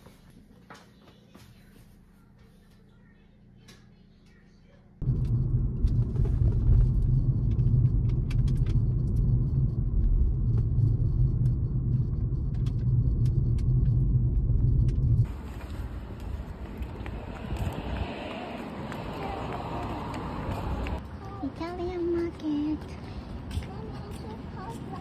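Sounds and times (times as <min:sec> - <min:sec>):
car driving rumble from inside: 0:05.0 - 0:21.0
airy outdoor sound: 0:05.0 - 0:25.0.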